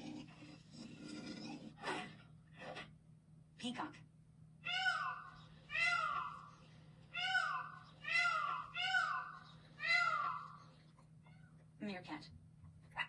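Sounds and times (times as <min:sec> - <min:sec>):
peacock screaming: 0:04.6 - 0:10.7.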